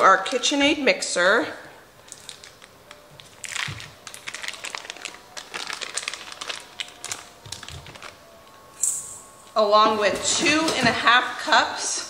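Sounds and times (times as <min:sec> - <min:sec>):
paper wrappers crinkling: 0:02.0 - 0:08.2.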